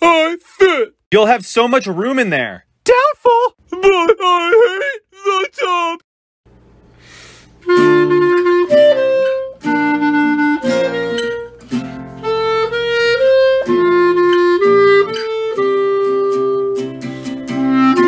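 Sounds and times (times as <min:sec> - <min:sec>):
melody of held notes: 0:07.6 - 0:18.0.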